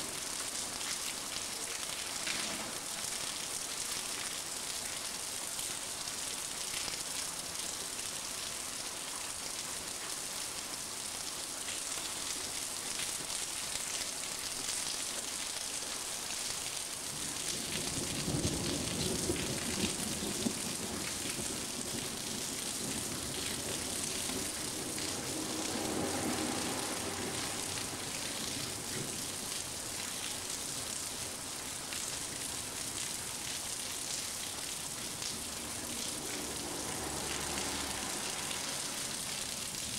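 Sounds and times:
heavy rain falling: 0:00.0 - 0:39.9
thunder rolling: 0:18.0 - 0:29.2.

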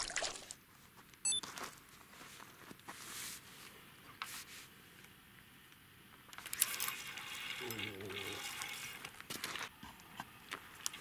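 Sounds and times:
water splashing and dripping: 0:00.0 - 0:00.6.

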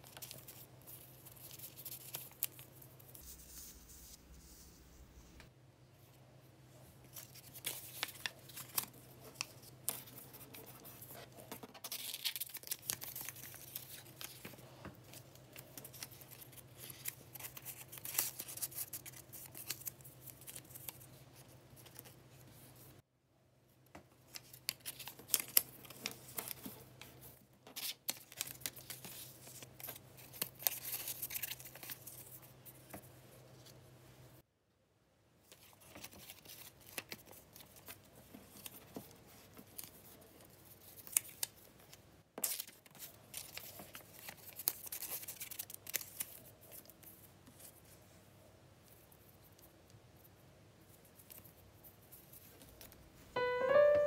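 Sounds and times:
paper rustling and crinkling: 0:07.0 - 0:22.9, 0:24.3 - 0:33.8, 0:35.5 - 0:48.0.

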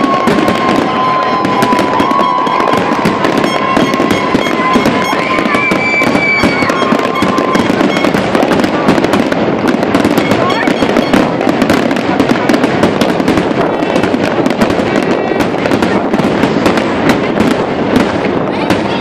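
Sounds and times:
fireworks crackling: 0:00.0 - 0:19.0
fireworks shells bursting: 0:00.0 - 0:19.0.

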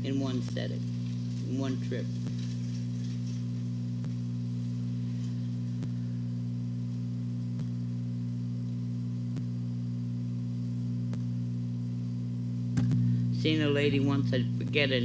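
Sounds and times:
low electrical hum: 0:00.0 - 0:15.0.

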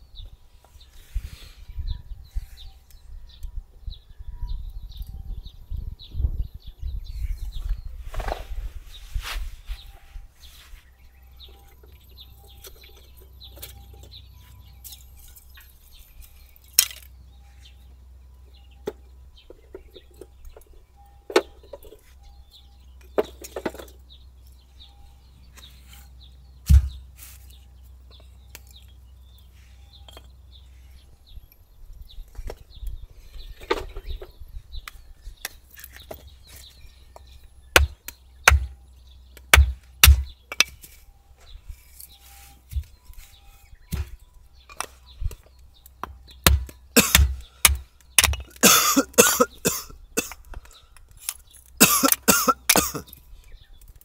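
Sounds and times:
hatchet chopping firewood: 0:26.6 - 0:27.1, 0:34.8 - 0:40.9, 0:43.9 - 0:49.4.

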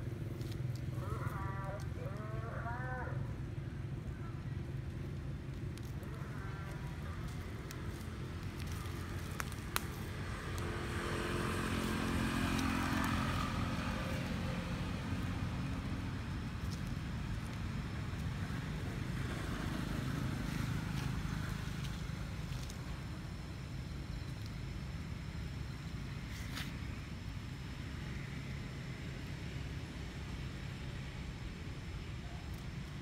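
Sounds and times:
steady low rumble: 0:00.0 - 0:33.0
vehicle engine passing: 0:05.3 - 0:23.4.

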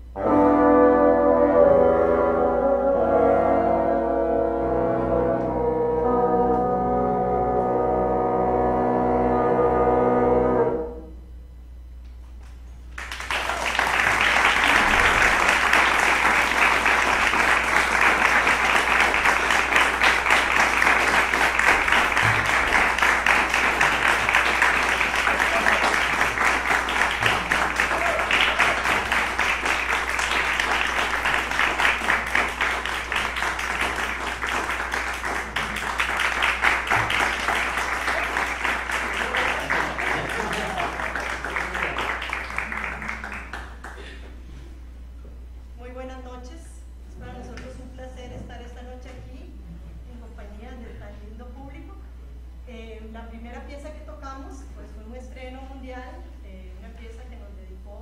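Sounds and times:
audience applause: 0:12.9 - 0:44.2.

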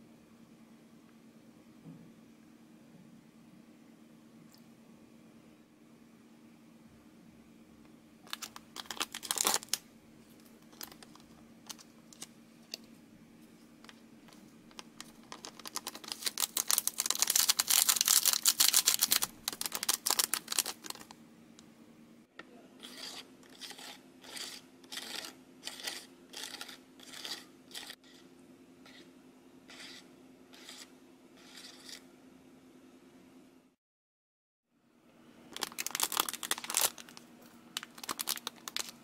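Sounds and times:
plastic sachet crinkling: 0:08.2 - 0:09.8, 0:10.4 - 0:12.3, 0:14.7 - 0:21.2, 0:35.5 - 0:39.0
plastic sachet tearing: 0:08.3 - 0:09.8, 0:10.7 - 0:12.3, 0:14.7 - 0:21.2, 0:35.5 - 0:37.2, 0:37.8 - 0:39.0
plastic spoon scraping tray: 0:22.8 - 0:28.3, 0:29.7 - 0:32.0.

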